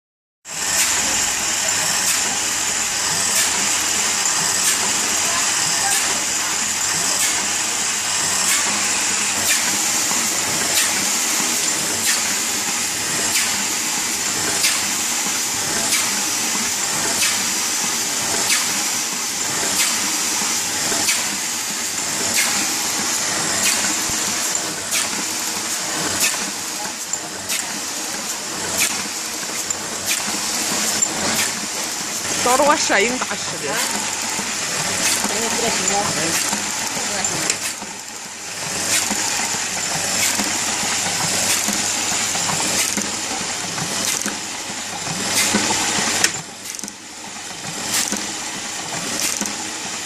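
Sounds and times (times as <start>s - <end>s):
printing press mechanical whir: 0.5s - 50.0s
sharp mechanical clack: 3.3s - 4.9s, 8.4s - 8.8s, 10.6s - 12.4s, 13.2s - 13.6s, 14.4s - 14.9s, 15.8s - 16.2s, 17.0s - 17.5s, 18.3s - 18.8s, 19.6s - 20.1s, 20.9s - 21.4s, 22.3s - 22.7s, 23.6s - 31.7s, 38.8s - 44.4s, 45.1s - 47.0s, 47.8s - 48.3s, 49.0s - 49.6s.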